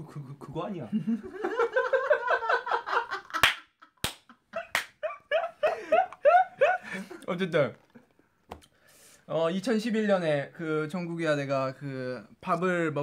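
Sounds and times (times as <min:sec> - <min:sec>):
hand slapping: 0:03.4 - 0:05.0.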